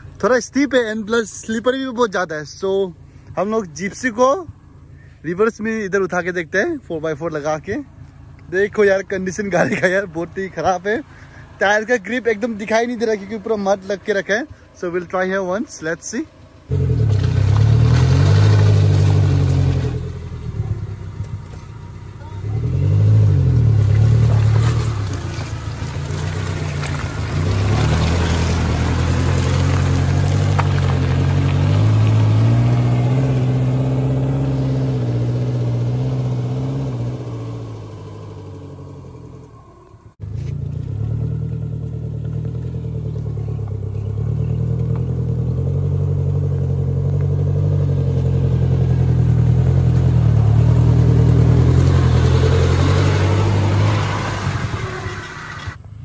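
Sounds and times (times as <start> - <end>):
car engine revving: 7.1 - 55.9
wheels spinning in mud: 15.0 - 56.0.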